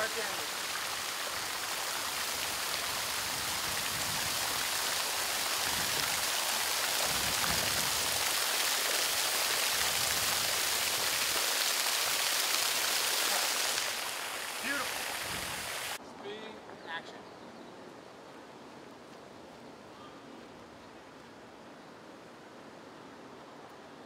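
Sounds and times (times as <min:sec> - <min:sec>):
fountain water splashing: 0:00.0 - 0:16.0.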